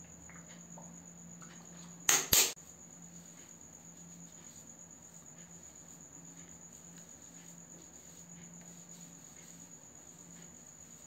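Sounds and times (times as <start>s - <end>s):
cotton pad brushing skin: 2.6s - 11.0s.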